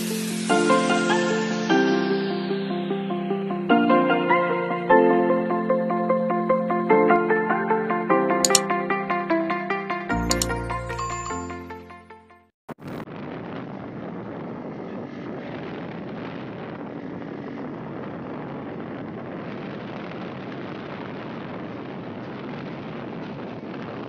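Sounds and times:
short click: 8.5 - 8.7, 10.2 - 11.0
wind on microphone: 13.3 - 24.0.

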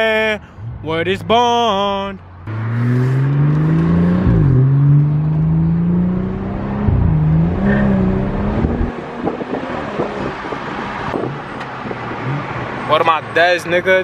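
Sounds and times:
road and drivetrain noise: 0.0 - 14.0
car engine accelerating: 2.2 - 12.9.

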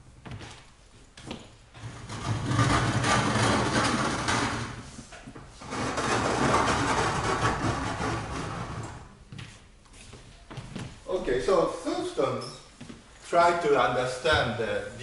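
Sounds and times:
blackboard panels sliding: 1.8 - 9.1.

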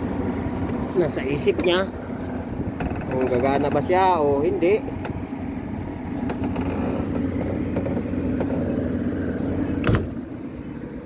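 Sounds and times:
forklift engine idling: 0.0 - 11.0.

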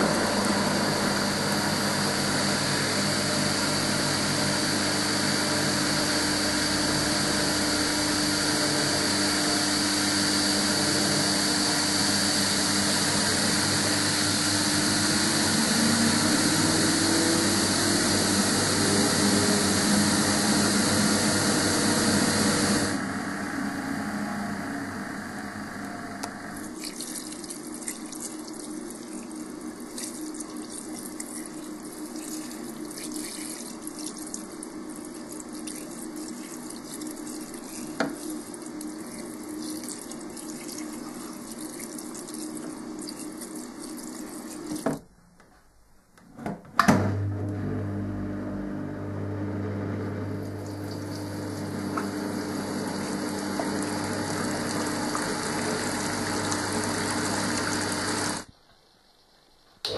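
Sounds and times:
spin dryer motor hum: 0.0 - 45.0, 46.8 - 58.5
water gushing into metal sink: 26.5 - 45.0, 50.6 - 58.5
water running into drum: 26.5 - 45.0, 50.5 - 58.5.

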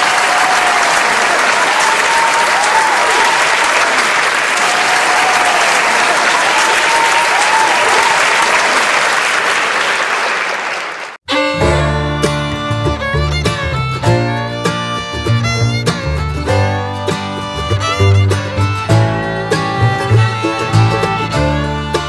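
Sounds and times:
crowd applauding: 0.0 - 11.3
music: 11.3 - 22.0.

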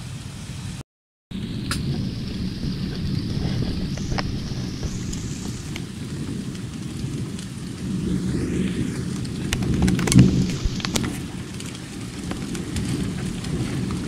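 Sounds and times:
steady rain: 0.0 - 14.0
low rumble of thunder: 1.3 - 14.0
hiss: 1.6 - 5.8, 8.0 - 11.3.

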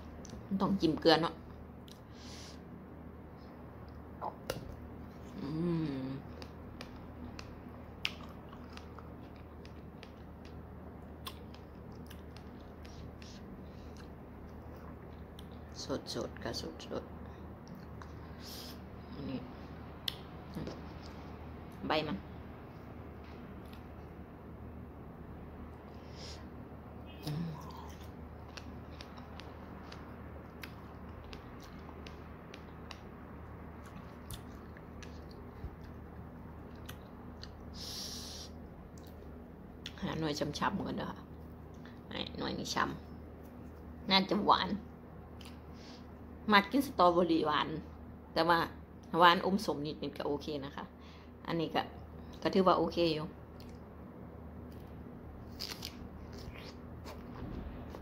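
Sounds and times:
wet chewing mouth sounds: 6.2 - 15.8, 27.6 - 33.0, 33.8 - 37.8, 55.6 - 57.6
low hum: 53.3 - 58.0.

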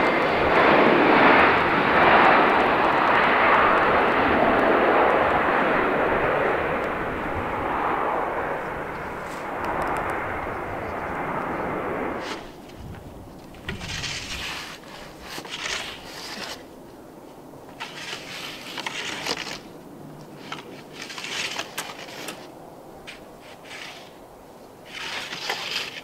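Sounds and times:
jet engine noise: 0.0 - 26.0
short scraping crackling noises: 12.2 - 16.8, 17.7 - 24.2, 24.8 - 26.0.

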